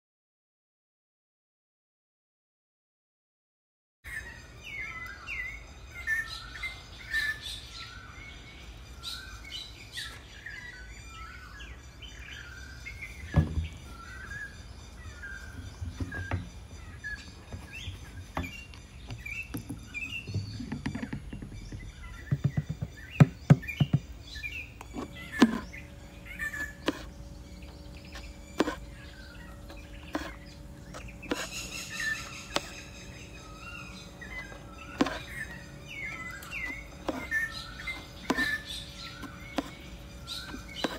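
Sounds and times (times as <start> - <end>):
small birds chirping: 4.1 - 40.9
sharp taps and knocks: 17.5 - 24.2.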